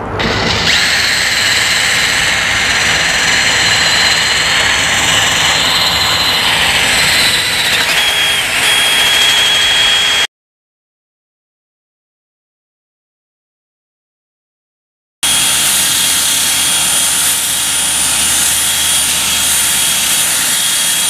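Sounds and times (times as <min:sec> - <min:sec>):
drill motor whine: 0:00.0 - 0:10.3, 0:15.2 - 0:21.0
abrasive sanding rasp: 0:00.2 - 0:10.2, 0:15.2 - 0:21.0.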